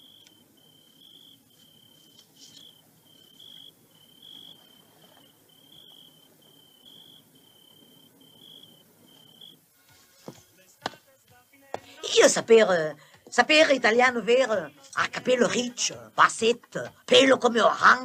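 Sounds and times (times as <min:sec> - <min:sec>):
cricket chirping: 0:00.0 - 0:09.8.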